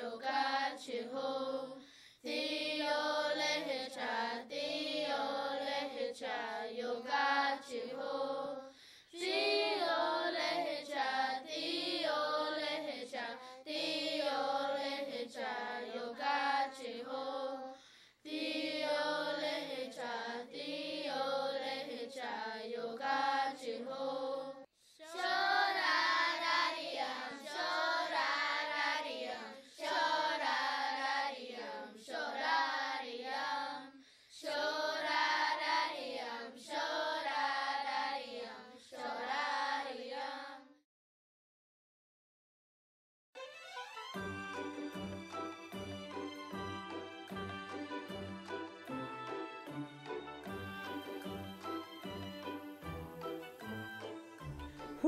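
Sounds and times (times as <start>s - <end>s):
children singing: 0.0s - 40.7s.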